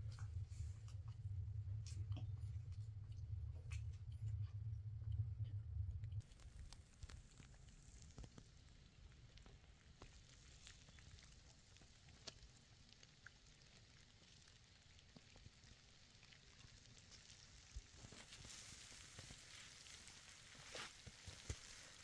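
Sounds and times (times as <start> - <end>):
faint irregular crackling: 0.0 - 22.0
soft hiss: 6.2 - 22.0.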